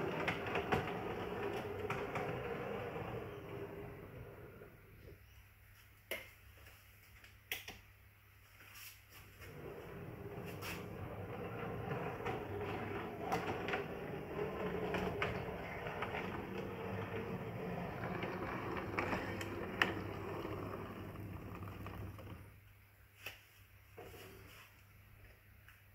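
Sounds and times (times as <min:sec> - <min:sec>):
wheels clicking over rail joints: 0:00.0 - 0:04.3, 0:09.6 - 0:22.5
model tram motor whirring: 0:00.0 - 0:04.8, 0:09.6 - 0:22.5.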